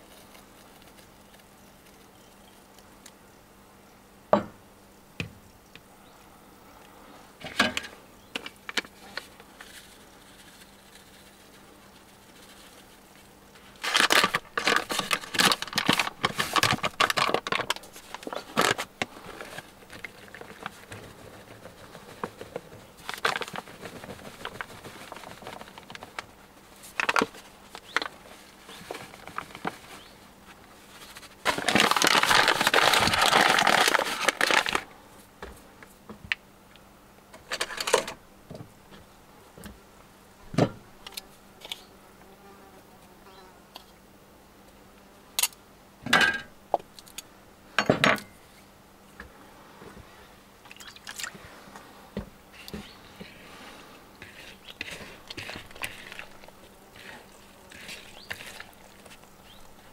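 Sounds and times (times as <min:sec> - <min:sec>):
flour bag crinkling and rustling: 0:08.5 - 0:34.9, 0:54.2 - 0:59.9.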